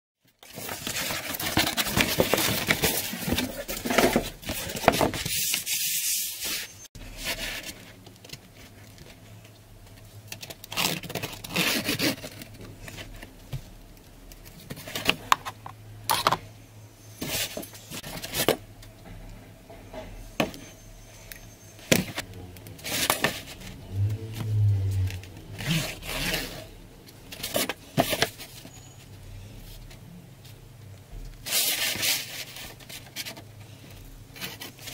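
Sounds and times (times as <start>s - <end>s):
cardboard sheets scraping: 0.4s - 8.0s, 10.7s - 13.1s, 22.8s - 28.7s, 31.4s - 34.9s.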